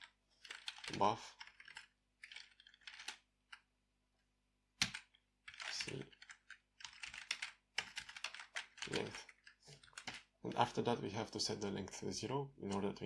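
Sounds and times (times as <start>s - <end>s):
keyboard typing: 0.0s - 3.7s, 4.8s - 10.3s.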